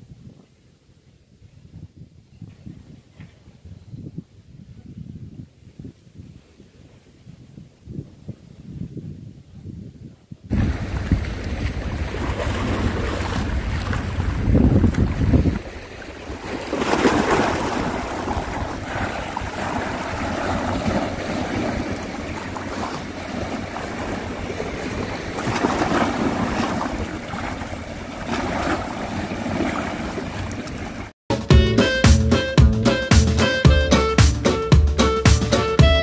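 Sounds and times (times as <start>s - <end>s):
wind buffeting microphone: 0.0s - 31.1s
sea surf washing on shore: 10.5s - 31.1s.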